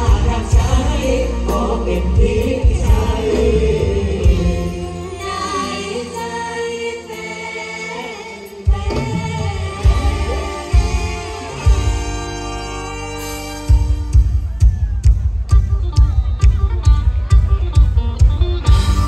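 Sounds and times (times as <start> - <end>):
stage-show music with singing: 0.0 - 19.0.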